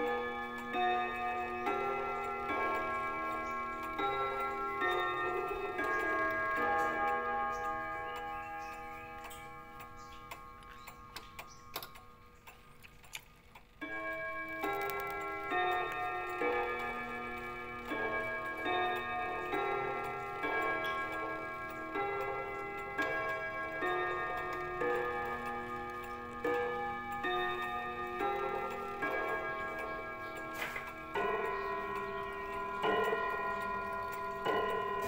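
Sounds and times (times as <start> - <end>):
clock chime melody: 0.0 - 12.8, 13.7 - 35.0.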